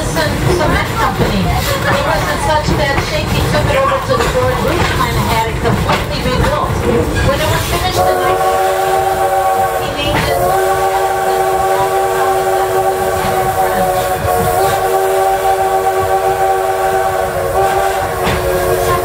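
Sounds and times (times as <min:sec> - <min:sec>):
train rumbling: 0:00.0 - 0:19.0
steam locomotive whistle: 0:07.6 - 0:19.0.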